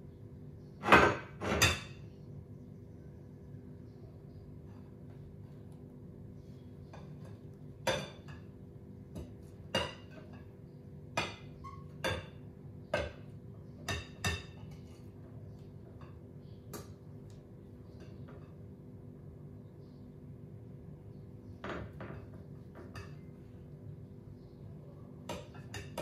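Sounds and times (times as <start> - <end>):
utensils clinking against dishes: 9.2 - 17.0, 25.2 - 26.0.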